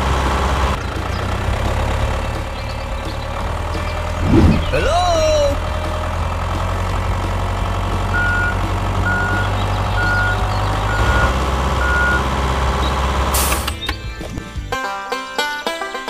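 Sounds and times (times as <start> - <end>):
vehicle engine running: 0.0 - 14.8
reversing alarm beeping: 8.2 - 12.3.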